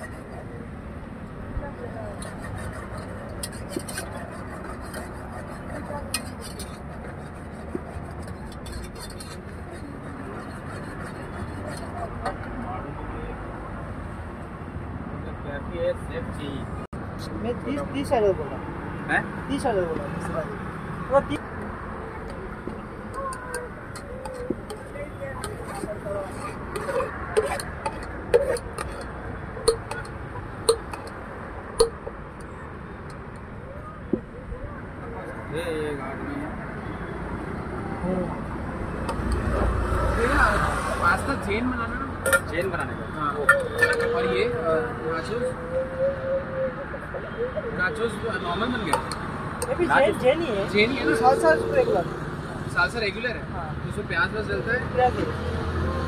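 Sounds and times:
metal spoon scraping plastic bowl: 2.2 - 12.5, 23.4 - 29.1, 43.5 - 44.1
spoon clinking on steel pot: 29.7 - 30.1.

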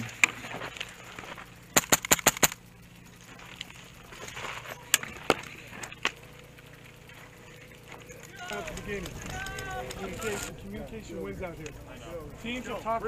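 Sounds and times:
airsoft rifle shots: 1.7 - 2.6.

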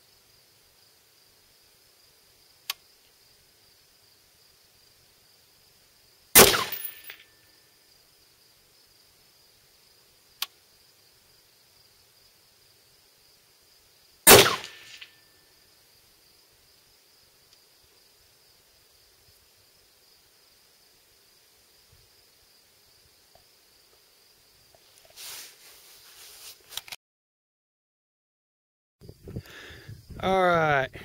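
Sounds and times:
high insect buzz: 0.0 - 26.8
sharp click: 2.6 - 2.8
rifle shots with echo: 6.4 - 7.1, 14.3 - 15.1.

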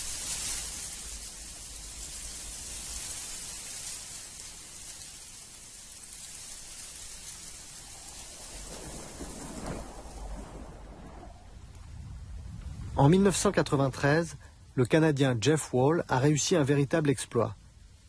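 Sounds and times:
steady rushing hiss: 0.0 - 18.0
low rumble: 7.6 - 15.0.

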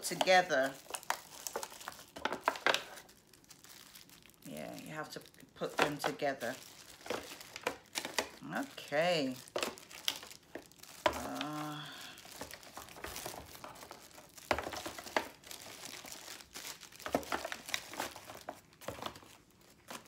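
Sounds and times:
packaging crinkling: 0.0 - 20.0
person humming: 11.1 - 12.3.

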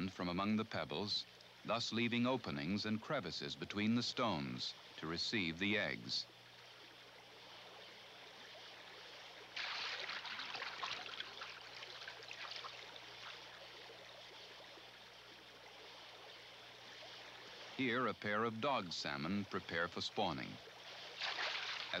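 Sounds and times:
gravel stream running: 0.0 - 22.0
fish splashing in water: 9.5 - 14.0, 21.0 - 22.0.

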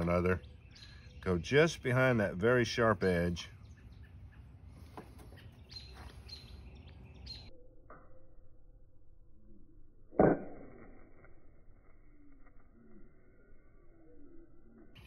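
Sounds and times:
small birds chirping: 0.0 - 7.5.

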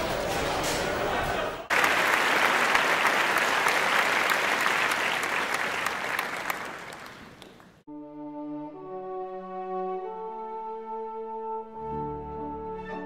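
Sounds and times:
audience applause: 0.8 - 7.8.

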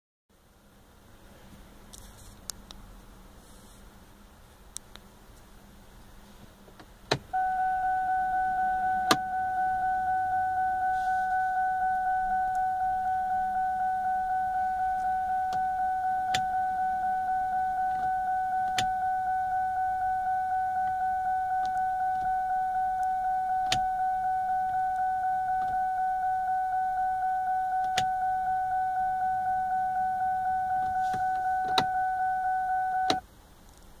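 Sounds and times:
electronic warning chime: 7.4 - 33.2.

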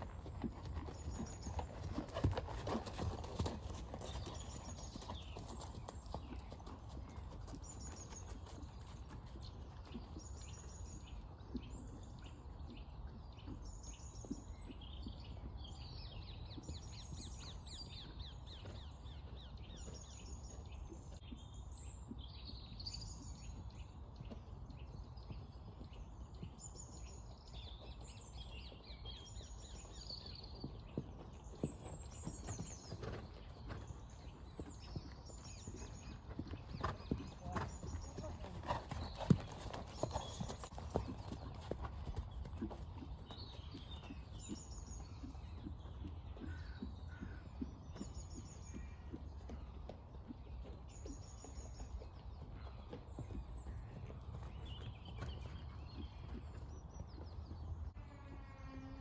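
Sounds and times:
horse hoofbeats on sand: 0.0 - 12.3, 29.1 - 58.0
birds chirping: 0.3 - 58.0.

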